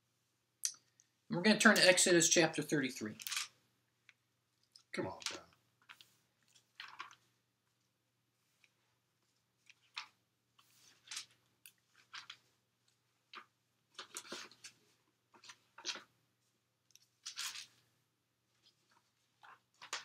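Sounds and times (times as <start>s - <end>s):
book pages turning: 13.4s - 14.8s.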